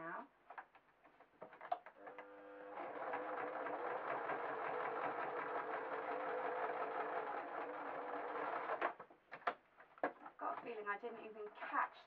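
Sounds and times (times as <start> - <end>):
electric sewing machine running: 2.0 - 9.0.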